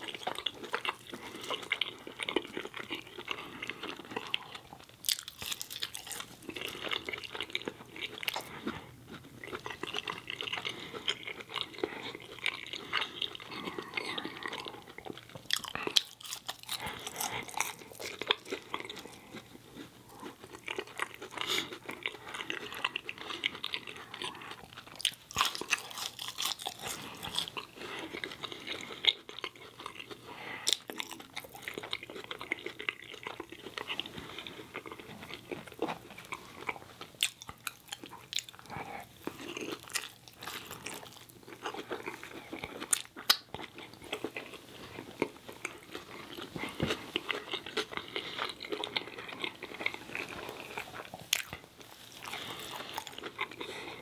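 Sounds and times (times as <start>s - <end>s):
chewing fries: 0.0s - 54.0s
mouth clicks and smacks: 42.8s - 43.6s.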